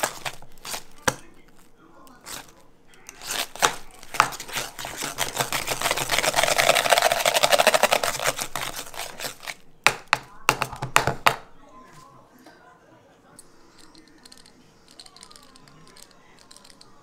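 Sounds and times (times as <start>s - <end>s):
whisk clicking and scraping metal bowl: 3.1s - 9.6s.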